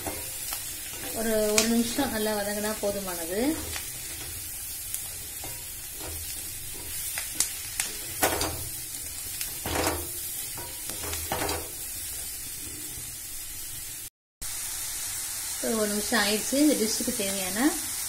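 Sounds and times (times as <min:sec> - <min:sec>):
spatula scraping a wok: 0:00.0 - 0:13.4
vegetables sizzling in butter: 0:00.0 - 0:18.0.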